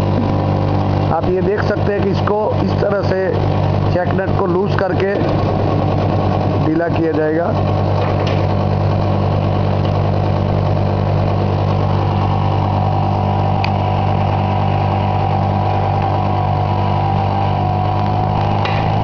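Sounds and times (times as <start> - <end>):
electric motor hum: 0.0 - 19.0
grinding wheel whirring: 0.0 - 19.0.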